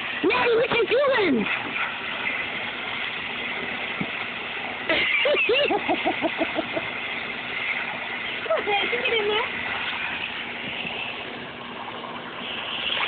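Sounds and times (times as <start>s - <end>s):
person laughing: 4.9s - 6.9s.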